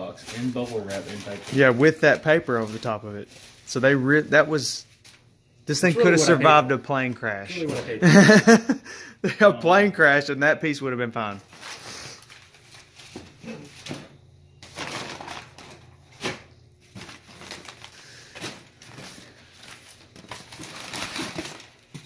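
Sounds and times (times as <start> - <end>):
paper rustling and crumpling: 0.1 - 4.0, 11.5 - 13.8, 14.6 - 18.2, 18.8 - 22.0.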